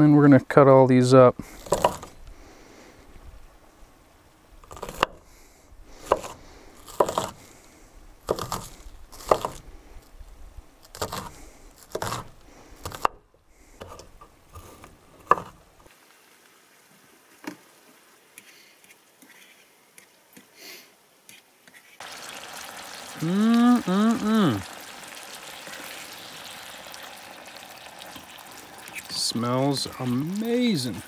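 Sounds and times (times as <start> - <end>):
knife chopping on wooden board: 6.1 - 7.4, 8.3 - 9.6.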